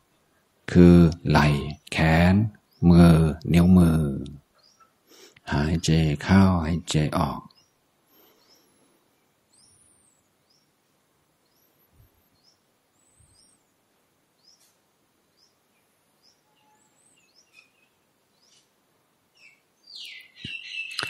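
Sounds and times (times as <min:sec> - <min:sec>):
birds chirping faintly: 0:00.0 - 0:21.0
shrill chattering bird call: 0:19.4 - 0:21.0.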